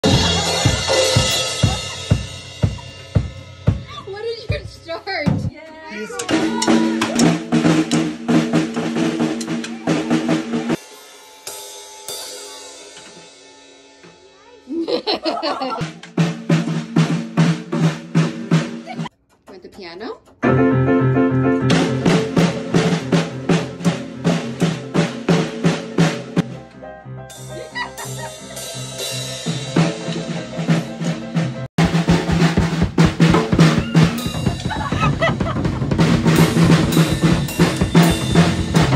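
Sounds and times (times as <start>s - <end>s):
child playing drum kit: 0.0s - 38.9s
cymbal strikes ringing: 36.4s - 38.9s.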